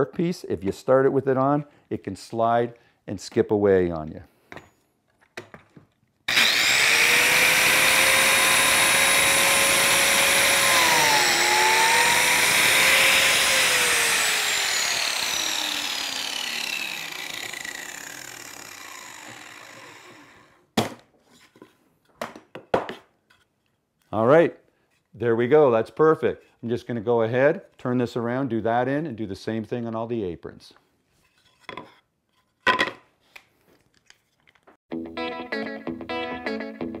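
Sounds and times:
biscuit joiner motor whining: 6.3 - 20.6.

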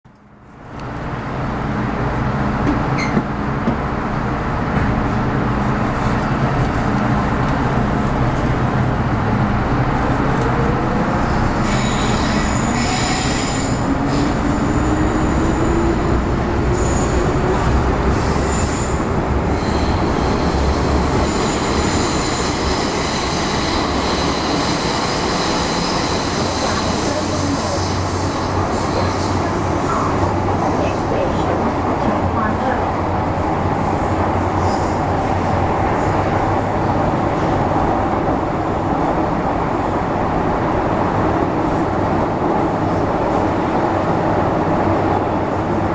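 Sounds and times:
train running noise: 0.1 - 45.9
high-pitched wheel squeal: 11.6 - 14.3.

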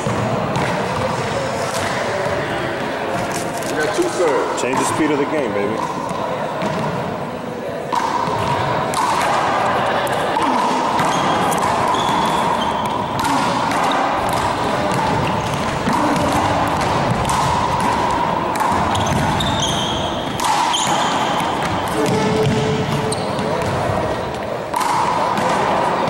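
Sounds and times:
handball hitting wall and floor: 0.0 - 4.0, 4.6 - 7.2, 7.9 - 26.0
sneakers squeaking on floor: 9.8 - 25.7.

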